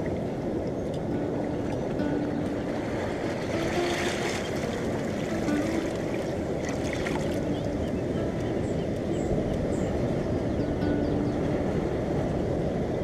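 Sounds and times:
surf rushing over rocks: 0:00.0 - 0:10.2.

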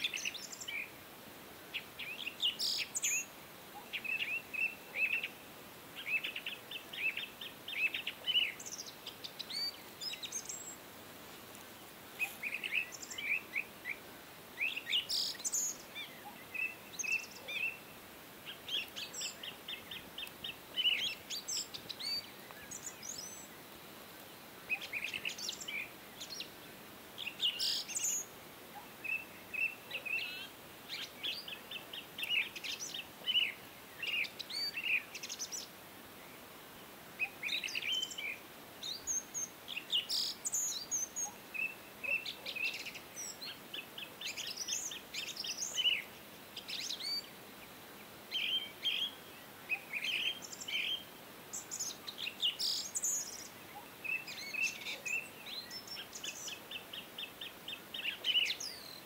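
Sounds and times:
sparrows chirping: 0:00.0 - 0:01.0, 0:01.7 - 0:05.4, 0:06.0 - 0:10.9, 0:12.2 - 0:23.7, 0:24.6 - 0:26.6, 0:27.2 - 0:35.7, 0:37.2 - 0:59.0.

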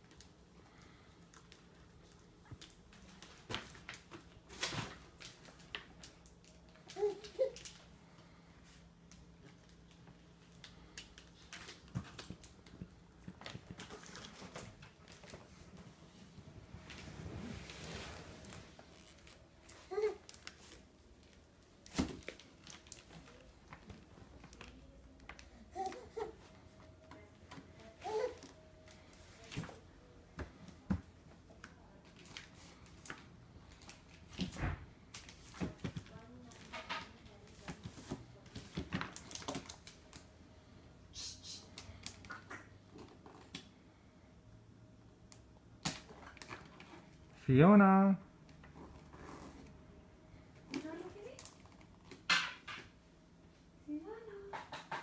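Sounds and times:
wrapping paper rustling: 0:17.0 - 0:26.3.

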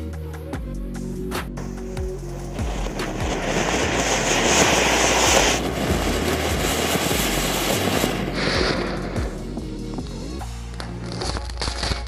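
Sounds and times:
fountain firework hissing: 0:02.4 - 0:09.5
burning matchsticks crackling: 0:02.5 - 0:09.3, 0:10.5 - 0:12.0.

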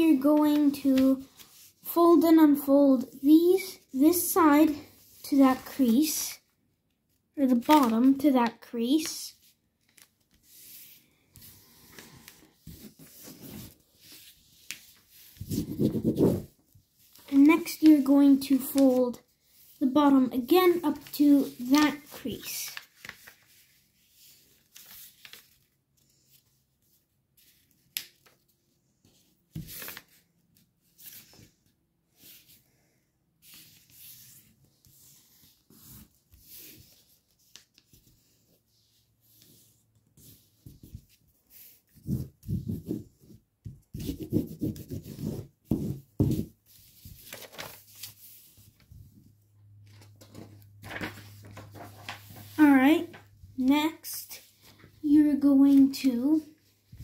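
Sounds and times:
paper rustling and rubbing: 0:07.5 - 0:31.6, 0:33.4 - 0:49.3, 0:49.9 - 0:53.3.

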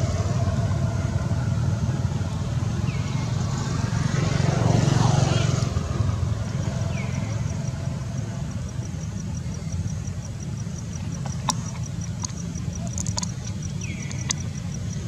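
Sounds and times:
faint high ticking: 0:06.9 - 0:15.0
sharp clicks: 0:11.0 - 0:15.0.

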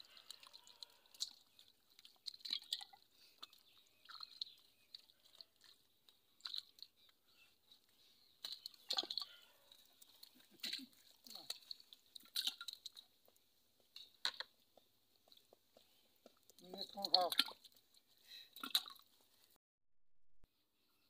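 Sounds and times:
fish splashing in muddy water: 0:00.0 - 0:07.1, 0:08.3 - 0:13.1, 0:18.5 - 0:19.1.

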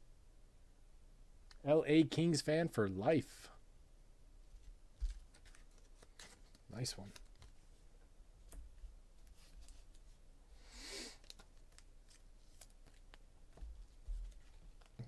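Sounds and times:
soft hiss: 0:00.0 - 0:15.0
trading cards ticking and rustling: 0:05.1 - 0:07.6, 0:11.2 - 0:13.2, 0:14.3 - 0:15.0.

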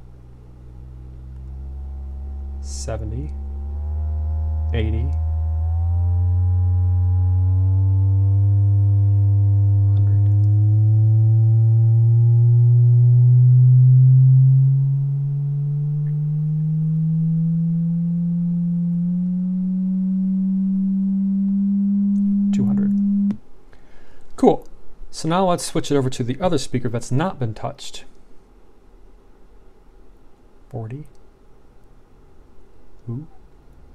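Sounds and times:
rising sine test tone: 0:00.0 - 0:23.4.

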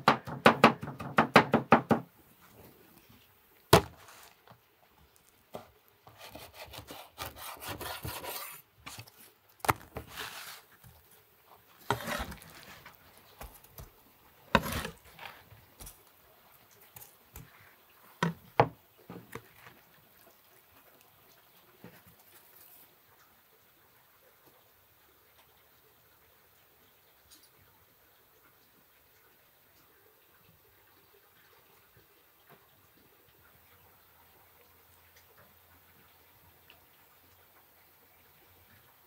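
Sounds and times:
knife knocking on board: 0:00.0 - 0:02.0
knife scraping wooden cutting board: 0:05.6 - 0:11.0, 0:11.8 - 0:13.9, 0:14.5 - 0:16.0.

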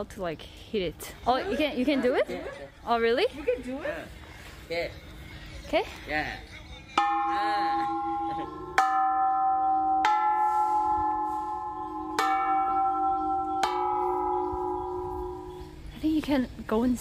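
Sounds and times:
temple bells ringing: 0:07.0 - 0:16.0.

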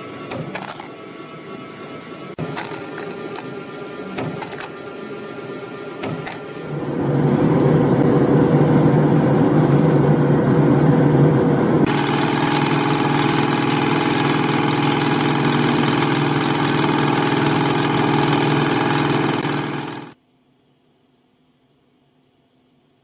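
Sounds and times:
mechanical drone: 0:00.0 - 0:20.2
spring coiling machine ticking: 0:11.9 - 0:20.2.

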